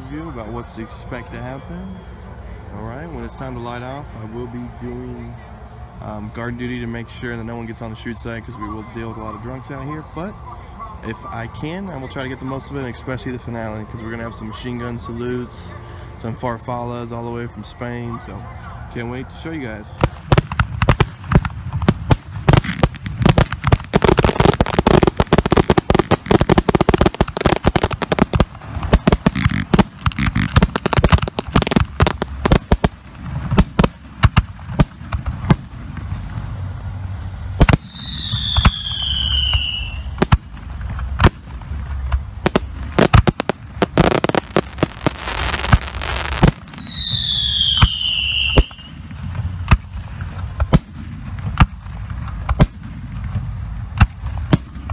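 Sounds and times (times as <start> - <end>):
fireworks bursting with bangs: 19.9 - 36.5, 37.6 - 54.9
firework whistles falling in pitch: 37.7 - 40.2, 44.0 - 49.0.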